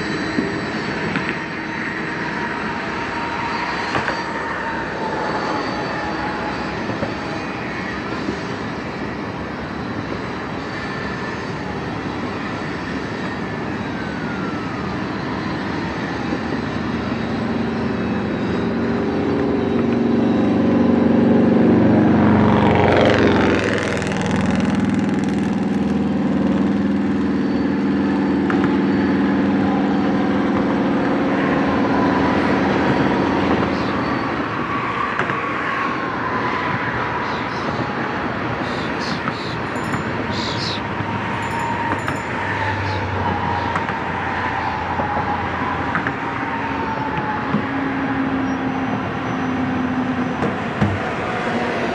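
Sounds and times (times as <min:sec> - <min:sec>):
diesel locomotive engine drone: 0:00.0 - 0:51.9
tank cars rolling past: 0:38.5 - 0:45.3.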